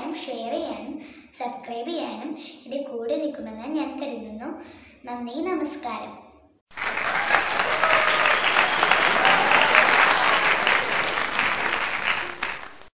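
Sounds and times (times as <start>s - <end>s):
crowd applause: 6.7s - 12.9s.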